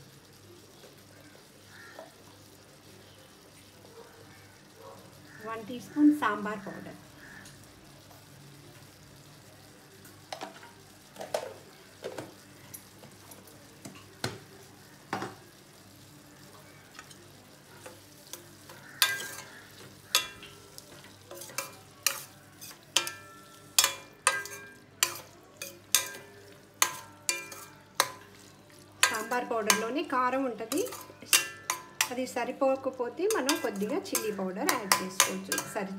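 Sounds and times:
faint sizzle: 0.0 - 35.9
spoon knocking and scraping pan: 17.8 - 32.4, 33.2 - 35.9.

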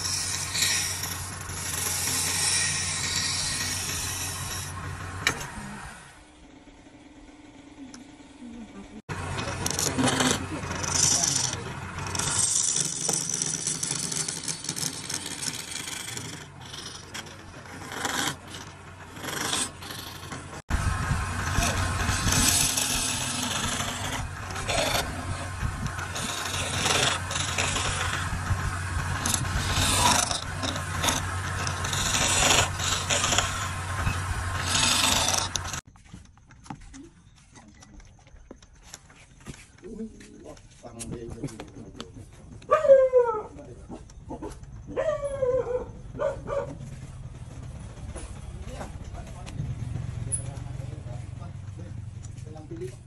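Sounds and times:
hissing scrape of wood turning: 0.0 - 6.0, 9.2 - 35.9
wood lathe humming: 0.0 - 8.2, 9.0 - 35.9.

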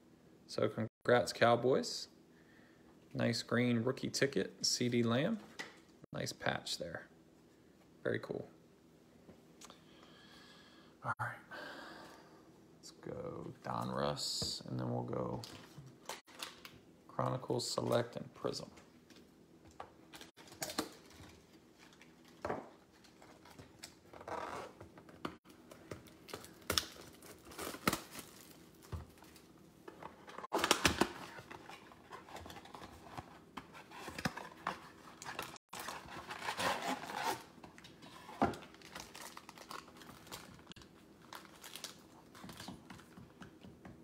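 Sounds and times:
foil packs crinkling: 25.5 - 29.5, 34.1 - 37.5, 38.1 - 42.9.

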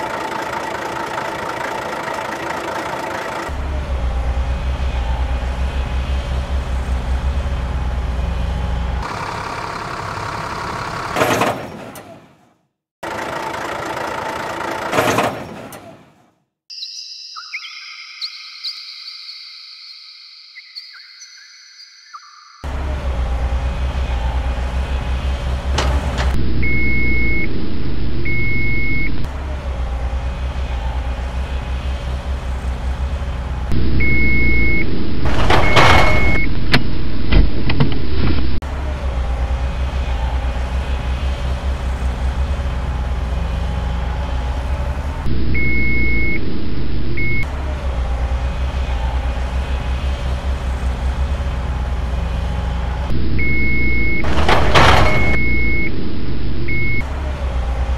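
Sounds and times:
diesel engine throbbing: 0.0 - 11.2, 22.6 - 57.9
reversing beeps: 26.6 - 27.6, 28.2 - 29.2, 34.0 - 36.6, 45.6 - 46.5, 47.2 - 47.5, 53.4 - 56.0, 56.6 - 57.0.

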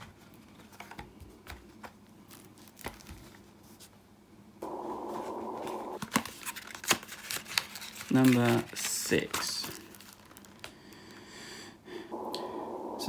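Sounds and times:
steady dull hiss: 4.6 - 6.0, 12.1 - 13.0.

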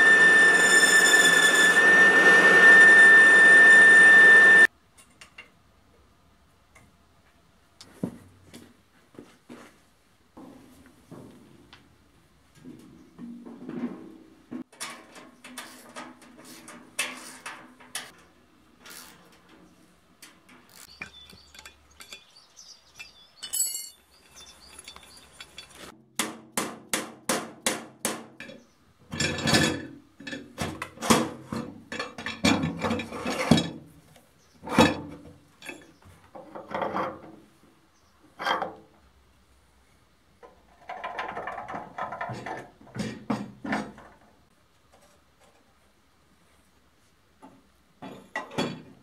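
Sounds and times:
clinks of metal pieces: 20.6 - 25.9.

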